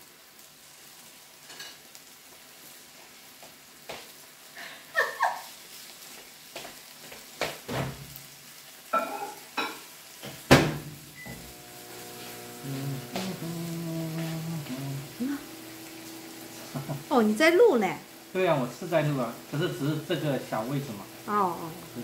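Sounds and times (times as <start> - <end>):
food sizzling on a grill: 0.0 - 22.0
utensils clinking on pan and dishes: 1.4 - 1.8, 8.9 - 10.4.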